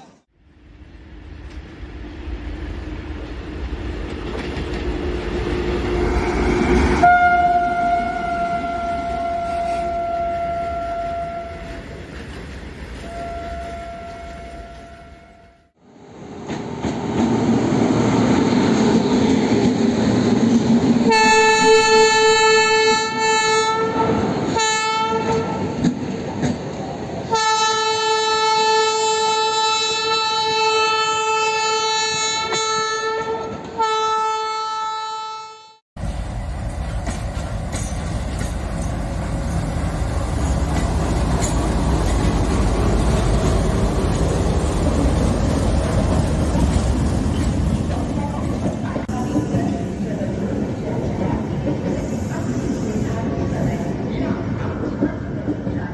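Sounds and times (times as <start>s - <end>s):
train rumbling: 0.0s - 34.2s, 36.0s - 55.9s
locomotive horn blasts: 7.0s - 11.8s, 13.0s - 15.7s, 21.1s - 25.7s, 27.3s - 35.8s.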